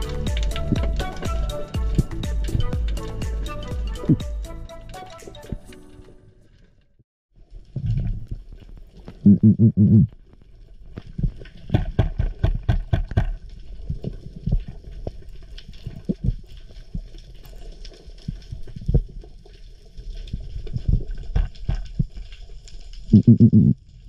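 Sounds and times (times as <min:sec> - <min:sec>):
muffled underwater rumble: 0:07.6 - 0:12.4, 0:23.0 - 0:24.0
sharp clicks and knocks: 0:11.7 - 0:13.4
underwater thumps: 0:11.7 - 0:13.4.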